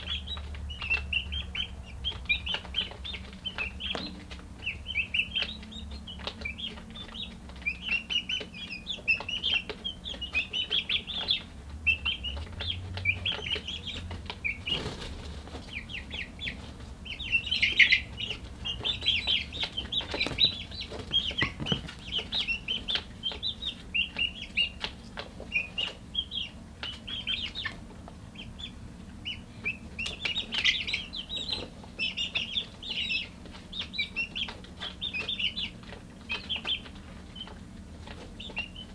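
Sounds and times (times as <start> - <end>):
chicks peeping and chirping: 0.0 - 38.9.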